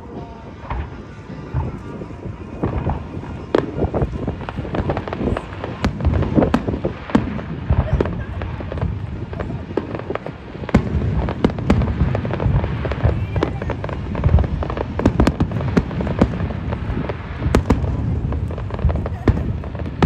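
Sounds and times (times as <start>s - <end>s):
firework shells bursting and crackling: 0.0s - 20.0s
sharp firework bangs: 0.6s - 20.0s.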